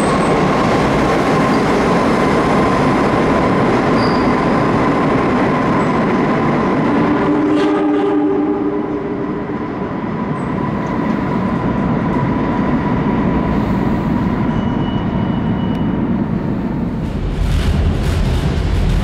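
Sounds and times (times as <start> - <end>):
wheels rumbling on rail: 0.0 - 19.0
train horn chord: 7.0 - 9.2.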